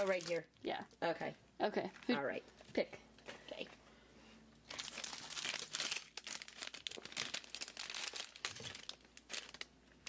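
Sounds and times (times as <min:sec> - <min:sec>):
plastic bag crinkling: 0:00.0 - 0:00.6, 0:04.6 - 0:09.7.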